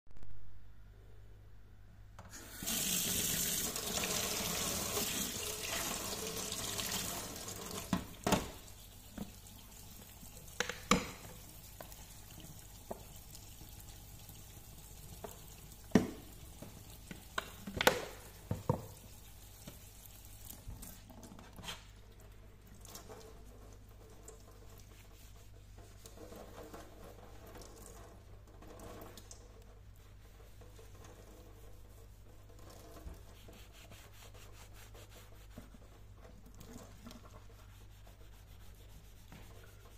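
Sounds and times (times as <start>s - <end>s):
tap running into metal sink: 7.7s - 8.6s, 10.5s - 11.4s, 15.2s - 19.0s.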